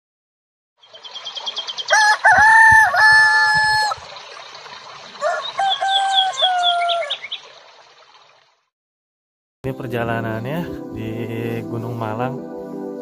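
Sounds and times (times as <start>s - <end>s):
small bird chirping: 0.8s - 2.0s, 5.3s - 7.5s
rooster crowing: 1.9s - 4.0s, 5.2s - 7.3s.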